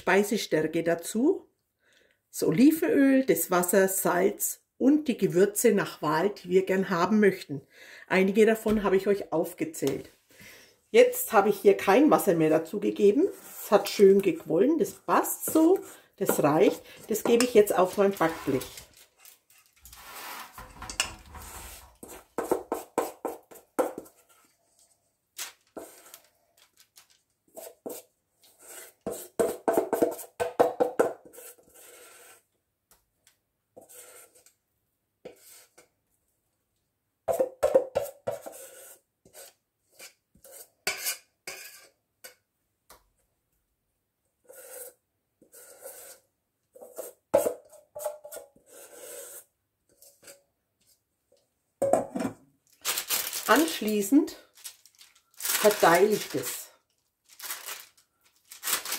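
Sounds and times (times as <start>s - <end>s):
metal spoon scraping steel bowl: 15.5s - 22.3s, 38.4s - 42.0s, 44.5s - 46.2s, 48.0s - 50.4s.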